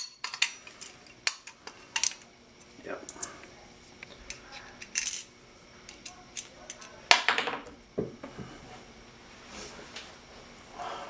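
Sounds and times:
metal hardware clinking: 4.3 - 5.3.

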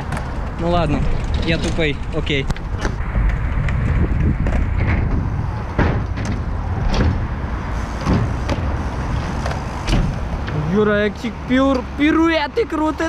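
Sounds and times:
sharp knocks and clatters: 0.0 - 7.2
bike tyres rumbling on concrete: 0.0 - 12.3.

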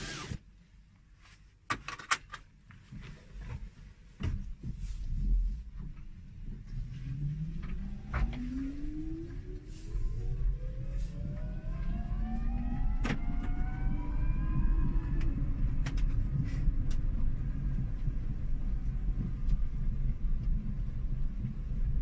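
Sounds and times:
electric motor whining: 7.1 - 15.4.

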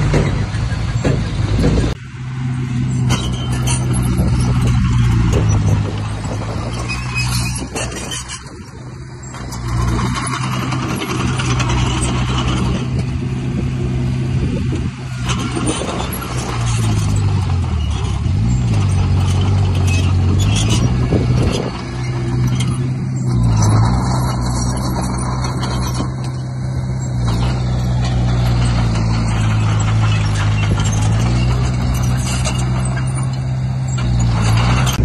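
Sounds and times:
diesel machinery engine running: 0.0 - 35.0.

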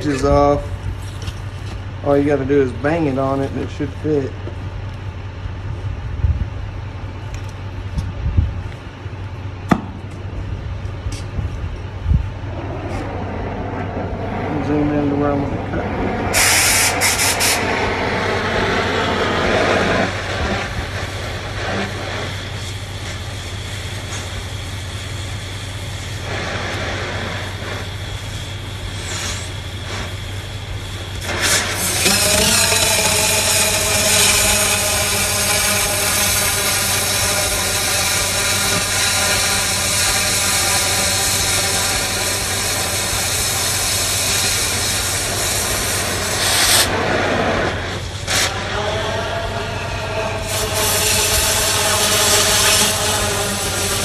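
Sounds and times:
cutting torch flame hissing: 0.0 - 4.9, 8.6 - 54.0
steady low hum: 0.0 - 54.0
cutting torch lighting snap: 31.1 - 48.6.

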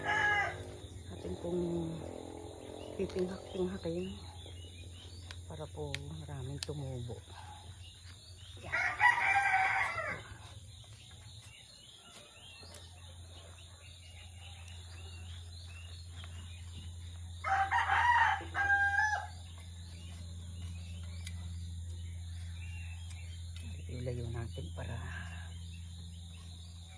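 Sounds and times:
rooster crowing: 0.0 - 0.9, 8.7 - 10.4, 17.4 - 19.4.

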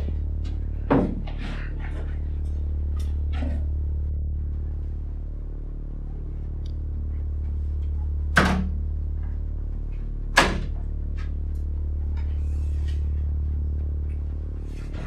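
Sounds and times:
steady low hum: 0.0 - 15.0
door banging shut: 10.3 - 10.8.

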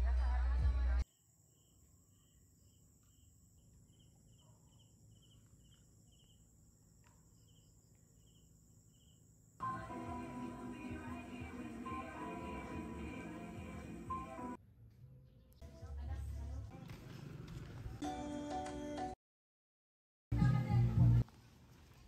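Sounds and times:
music: 0.0 - 1.0, 9.6 - 14.6, 18.0 - 19.2, 20.3 - 21.2
cricket chirping: 1.0 - 9.9.

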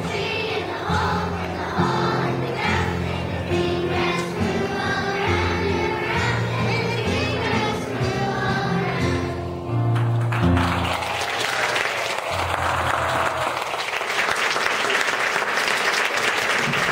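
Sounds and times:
children's choir singing: 0.0 - 9.8
keyboard accompaniment: 0.0 - 11.4
audience applause: 9.9 - 16.9.

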